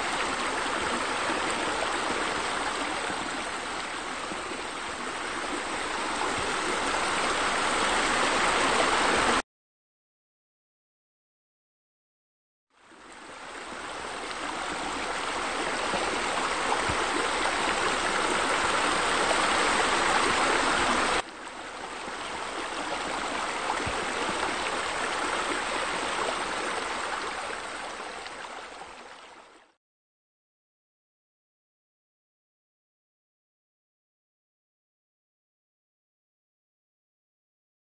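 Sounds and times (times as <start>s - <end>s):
running water: 0.0s - 9.4s, 12.8s - 29.8s.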